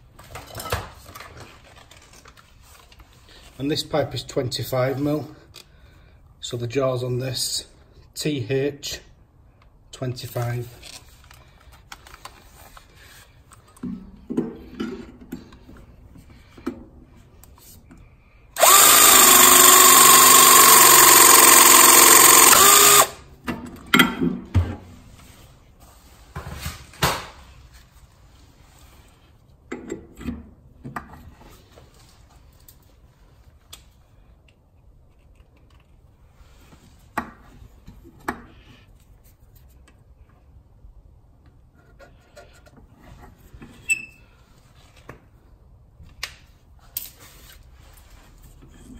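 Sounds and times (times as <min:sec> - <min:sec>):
pipe press tool motor whine: 0:18.6 - 0:23.2.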